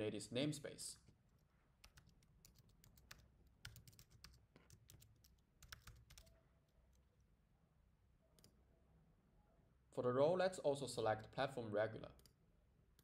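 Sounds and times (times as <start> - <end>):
keyboard typing: 1.8 - 7.0.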